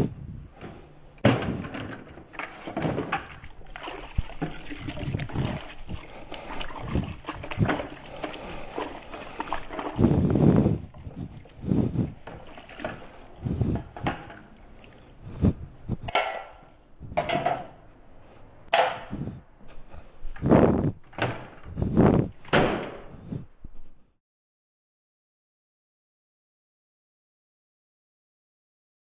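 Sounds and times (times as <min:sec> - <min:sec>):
water sloshing in a bucket: 0:02.3 - 0:16.4
sponge scrubbing metal knife: 0:03.3 - 0:14.0.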